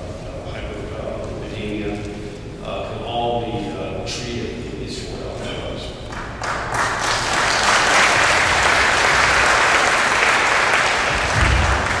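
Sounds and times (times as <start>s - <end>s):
audience applauding: 6.1s - 12.0s
low thump: 11.3s - 12.0s.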